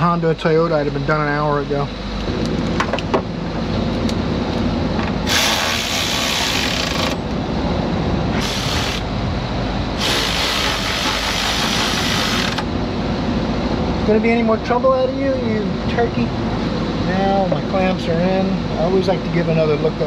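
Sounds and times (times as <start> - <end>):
vacuum pump motor drone: 0.0 - 20.0
loud hiss: 5.2 - 7.0, 8.4 - 9.1, 10.0 - 12.6.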